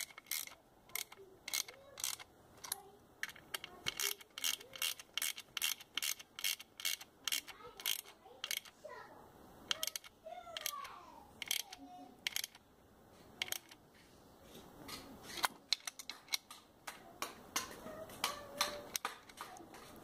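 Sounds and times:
ratchet wrench clicking: 0.0 - 8.7, 9.7 - 10.8, 11.4 - 12.6, 13.4 - 13.8.

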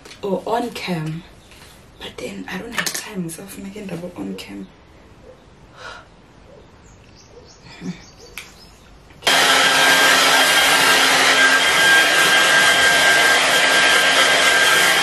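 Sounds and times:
hair dryer running: 9.2 - 15.0.

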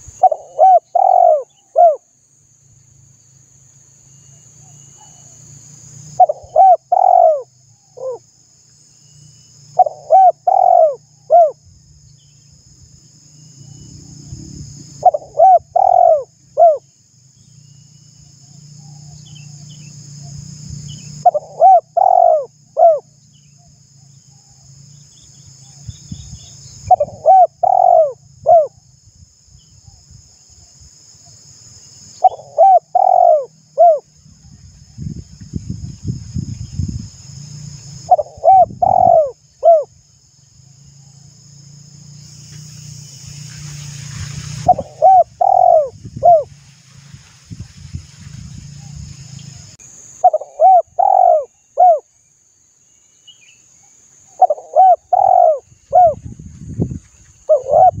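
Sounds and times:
dove cooing: 0.2 - 2.0, 6.2 - 8.2, 9.8 - 11.6, 15.0 - 16.8, 21.2 - 23.1, 26.9 - 28.7, 32.2 - 34.0, 38.1 - 39.9, 44.6 - 46.5, 50.2 - 52.1, 54.4 - 56.2, 57.5 - 58.0
faint high-pitched hiss: 38.8 - 58.0.

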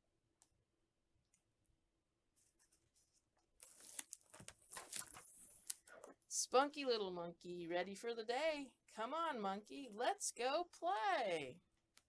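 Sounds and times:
paper pages rustling: 2.4 - 5.8.

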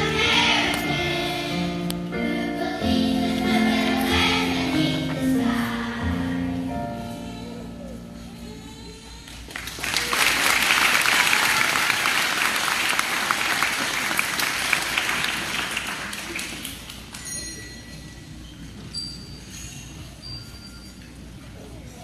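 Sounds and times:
audience applause: 9.4 - 17.0.

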